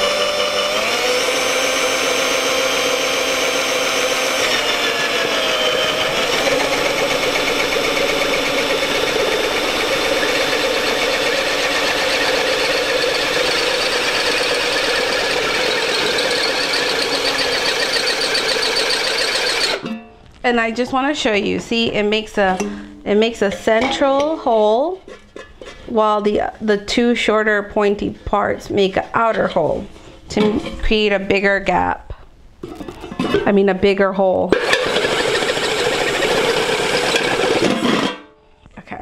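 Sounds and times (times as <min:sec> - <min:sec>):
cordless drill boring into metal: 0:00.0 - 0:19.9, 0:34.5 - 0:38.1.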